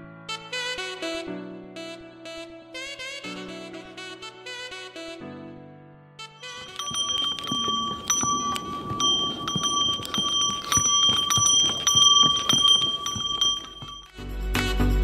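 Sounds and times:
music: 0:00.0 - 0:15.0
harness bell ringing: 0:06.4 - 0:14.2
hooves on rocky trail: 0:06.4 - 0:14.2.

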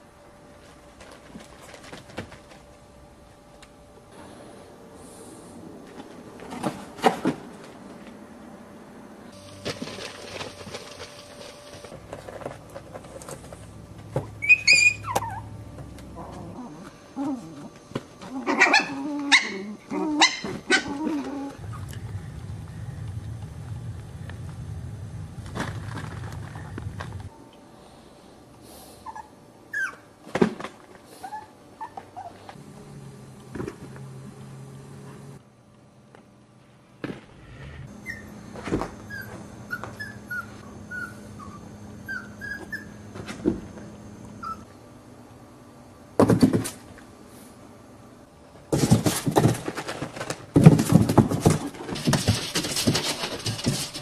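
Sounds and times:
low steady hum: 0:00.0 - 0:54.0
puppy paws scrabbling on cardboard: 0:00.6 - 0:02.8, 0:09.4 - 0:14.4, 0:48.7 - 0:54.0
puppies yipping and whimpering: 0:14.4 - 0:15.6, 0:18.3 - 0:21.9, 0:29.1 - 0:30.0, 0:38.0 - 0:38.4, 0:39.0 - 0:43.1, 0:44.4 - 0:44.7.

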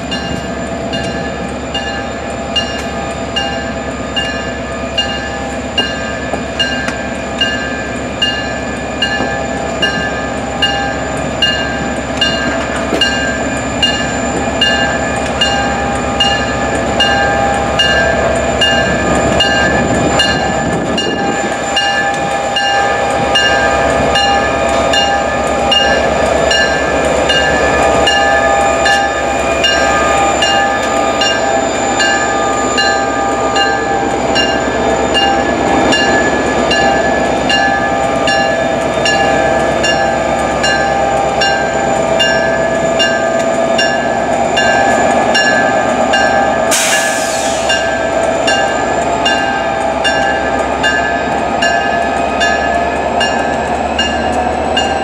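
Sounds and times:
diesel locomotive engine running: 0:00.0 - 0:55.0
locomotive bell ringing: 0:00.0 - 0:55.0
brief hiss: 0:46.7 - 0:47.7.

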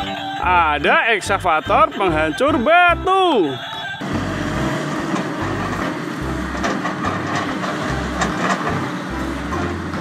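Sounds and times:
excavator engine running: 0:00.0 - 0:10.0
hydraulic rock breaker pounding: 0:04.0 - 0:10.0.

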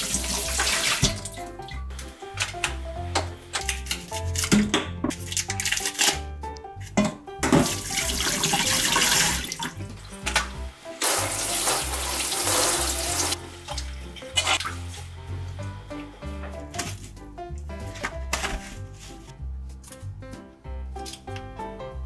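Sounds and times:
tap water running into steel sink: 0:00.0 - 0:01.4, 0:07.4 - 0:14.9
background music: 0:00.0 - 0:22.0.

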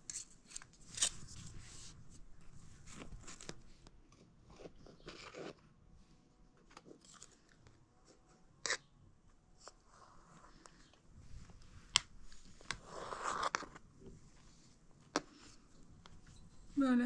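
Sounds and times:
soft crunches of eating cake: 0:02.8 - 0:05.8, 0:06.6 - 0:08.9.

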